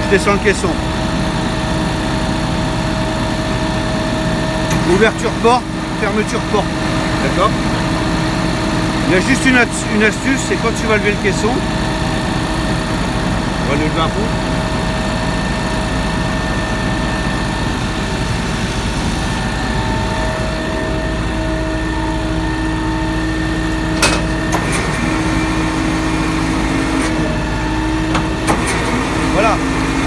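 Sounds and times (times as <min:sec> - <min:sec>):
street sweeper engine running: 0:00.0 - 0:30.0
steady hum: 0:04.1 - 0:30.0.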